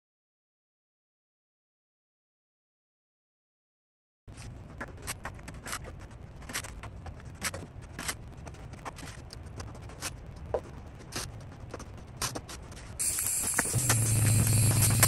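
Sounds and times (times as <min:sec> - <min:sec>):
low steady hum: 0:04.3 - 0:15.0.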